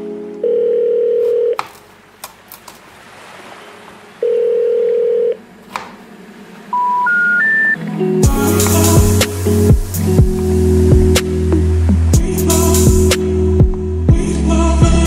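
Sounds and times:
rising electronic tones: 6.2 - 13.9
long electronic beeps: 6.7 - 7.8.

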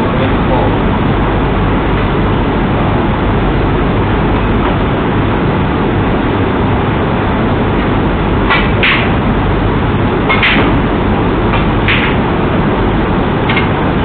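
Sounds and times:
room noise hiss and rumble: 0.0 - 14.0.

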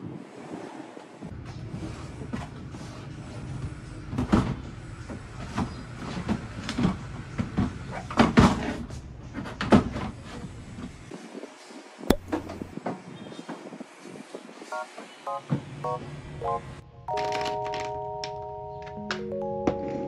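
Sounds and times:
sharp click: 12.1 - 12.7.

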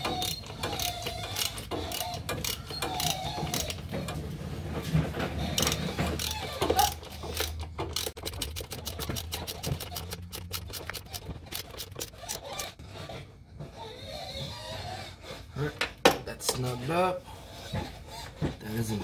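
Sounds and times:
ratchet wrench clicking: 0.0 - 3.7, 5.6 - 12.8.

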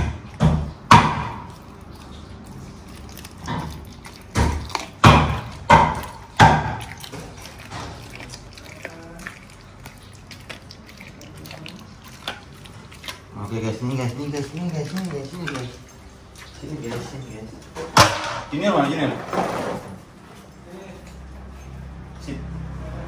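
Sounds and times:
meat thudding on tiled floor: 0.0 - 1.6, 3.3 - 8.0.

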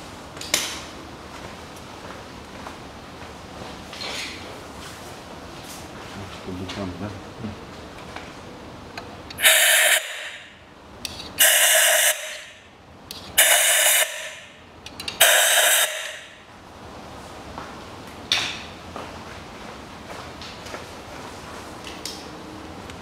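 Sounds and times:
compressed air blasts hissing: 9.4 - 10.6, 11.4 - 12.6, 13.4 - 14.5, 15.2 - 16.3.

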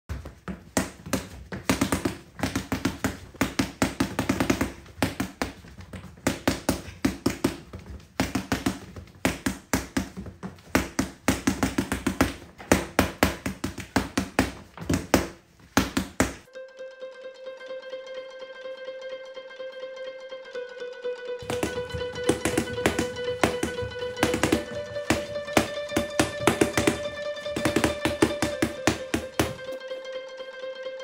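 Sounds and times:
boxing gloves punching paper: 0.1 - 16.5, 21.4 - 29.8.

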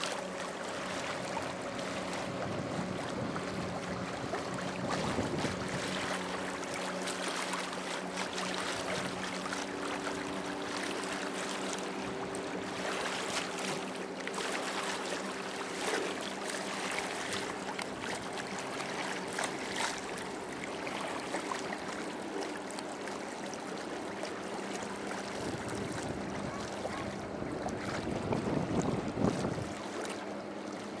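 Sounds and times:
low motor hum: 0.0 - 31.0
water noise: 0.0 - 31.0
wind buffeting microphone: 0.9 - 6.5, 25.3 - 30.0.

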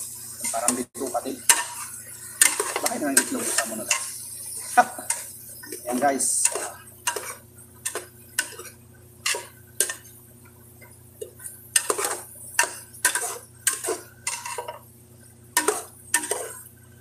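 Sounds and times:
low steady hum: 0.0 - 17.0
metal spoon scraping a pot: 1.5 - 4.2, 6.4 - 10.0, 11.8 - 14.8, 15.6 - 16.6.

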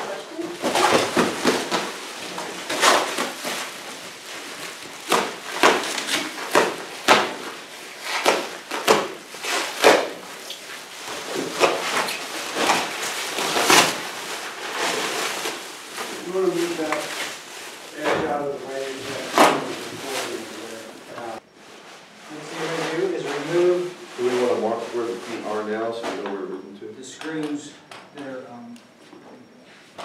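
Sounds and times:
plastic wrap crinkling: 0.0 - 26.2
plastic wrap ripping: 0.3 - 21.4.

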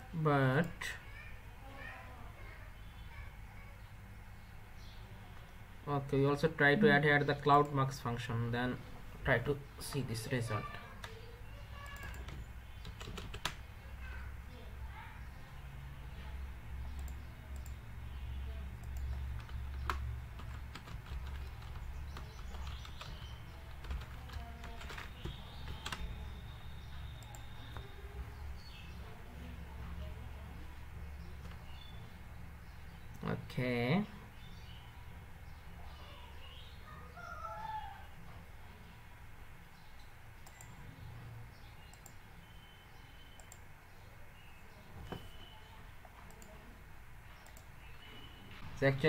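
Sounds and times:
computer keyboard typing: 11.0 - 13.7, 16.8 - 17.9, 18.7 - 28.4, 40.0 - 40.8, 43.2 - 43.7.

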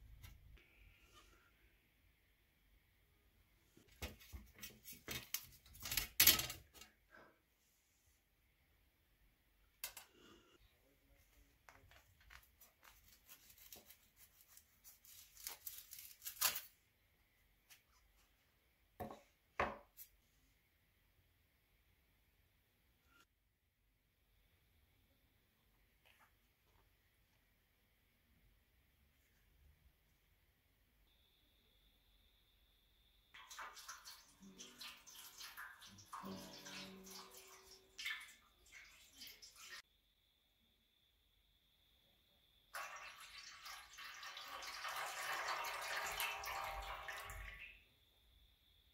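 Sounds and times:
water splashing into metal tray: 33.4 - 39.8, 42.8 - 47.7.

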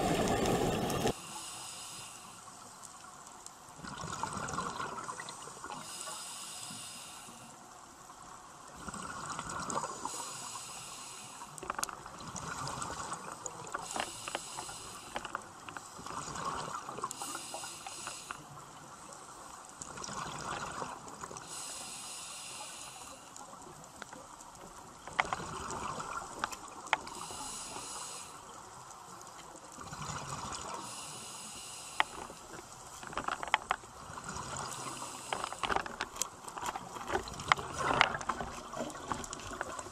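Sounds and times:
exhale bubbling: 0.0 - 1.2
regulator inhale hiss: 0.9 - 2.9, 5.6 - 7.7, 9.8 - 11.7, 13.7 - 16.0, 17.0 - 18.6, 21.4 - 23.6, 27.0 - 28.6, 30.7 - 32.6, 34.6 - 36.1.

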